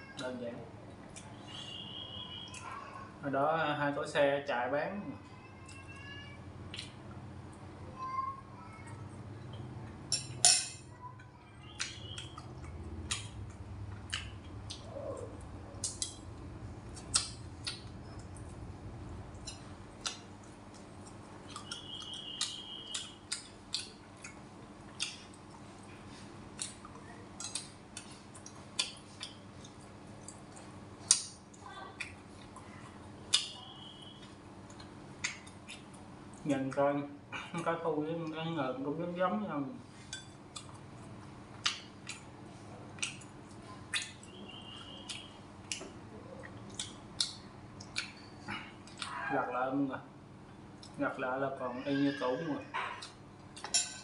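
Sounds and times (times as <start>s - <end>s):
utensils clinking on ceramic bowls: 53.6s - 54.0s.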